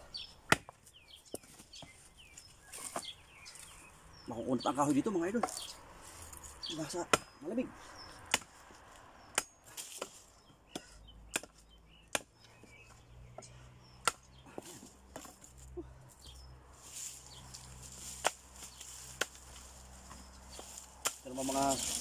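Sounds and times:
machete chopping branches: 0.4s - 1.9s, 2.7s - 3.7s, 5.3s - 7.4s, 8.1s - 12.9s, 14.0s - 15.6s, 17.5s - 22.0s.

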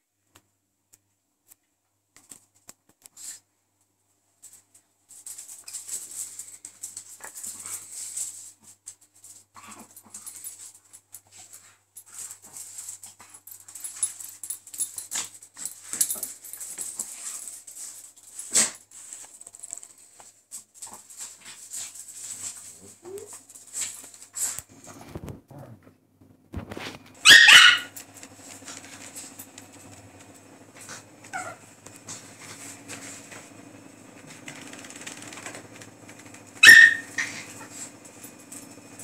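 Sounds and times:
dogs scuffling on tiles: 4.4s - 25.5s, 26.5s - 39.0s
dog barking: 27.2s - 28.0s, 36.6s - 37.5s.

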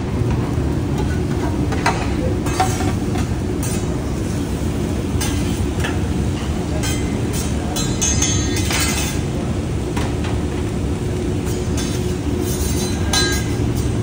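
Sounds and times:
grill exhaust fan rumble: 0.0s - 14.0s
metal spatula clinking on griddle: 5.2s - 9.2s, 11.4s - 14.0s.

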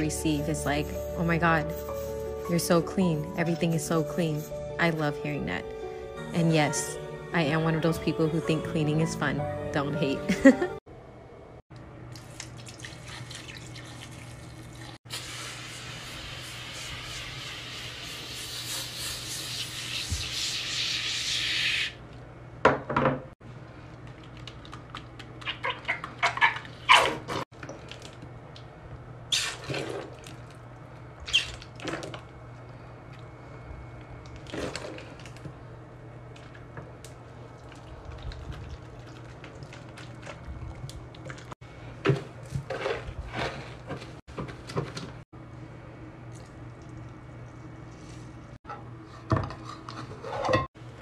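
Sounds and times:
liquid splashing into a sink: 12.1s - 15.0s
cleaning products squirting: 12.6s - 21.9s.

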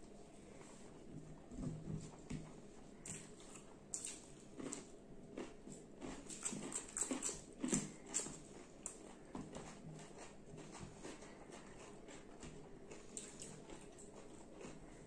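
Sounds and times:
crunchy clicks of food: 3.0s - 15.0s
wet chewing and lip-smacking: 3.0s - 15.0s.

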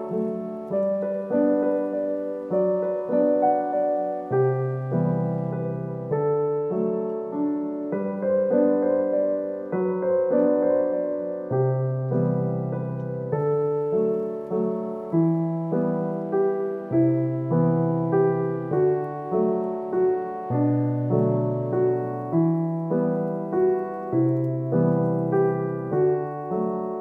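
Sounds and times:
slow piano music: 0.0s - 27.0s.

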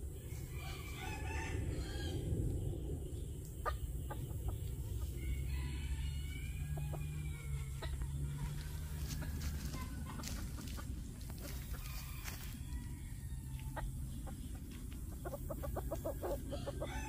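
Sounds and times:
steady low rumble: 0.0s - 17.0s
rooster crowing: 0.4s - 2.4s, 5.1s - 10.0s, 11.7s - 13.9s, 16.1s - 17.0s.

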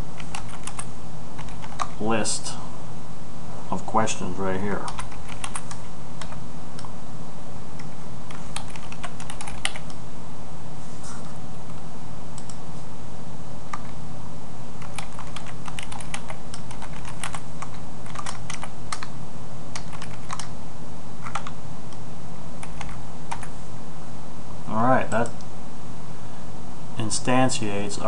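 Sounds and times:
steady low hum: 0.0s - 28.0s
keyboard typing: 0.2s - 2.0s, 4.8s - 6.9s, 7.8s - 10.0s, 13.7s - 14.0s, 14.8s - 19.1s, 19.7s - 20.5s, 21.2s - 21.6s, 22.6s - 23.5s.

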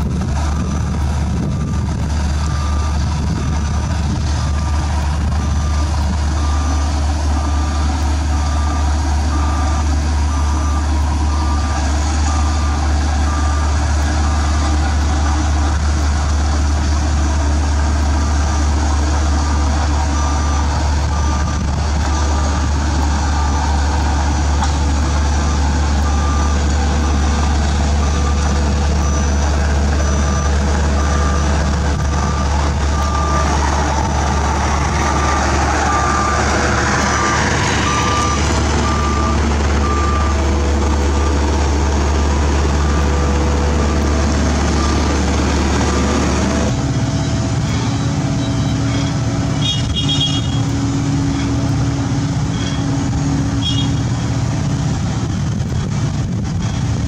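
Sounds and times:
reversing alarm beeping: 0.0s - 54.6s
heavy diesel machinery running: 0.0s - 57.0s.

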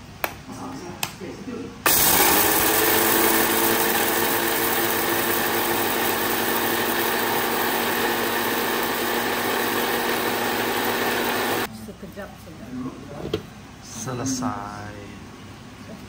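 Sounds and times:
electric blender grinding peppercorns: 1.9s - 11.7s.

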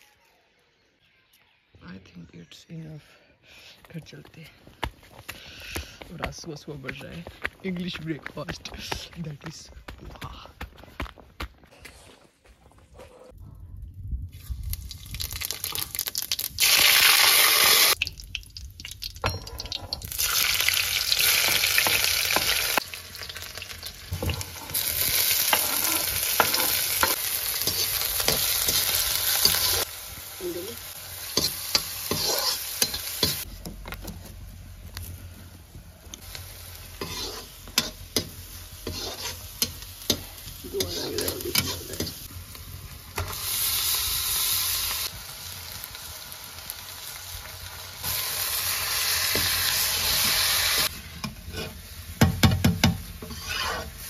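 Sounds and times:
food sizzling in a pan: 14.7s - 33.5s, 36.1s - 54.0s
utensil stirring and knocking pan: 24.1s - 29.8s, 31.3s - 34.0s, 37.0s - 42.2s, 51.1s - 53.9s.

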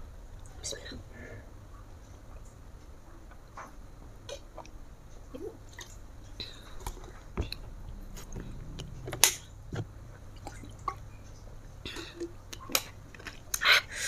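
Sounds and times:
swallowing: 4.3s - 11.0s.

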